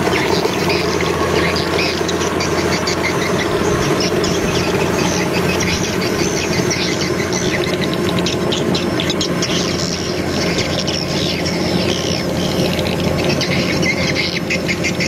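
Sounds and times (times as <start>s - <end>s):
combine harvester engine drone: 0.0s - 15.0s.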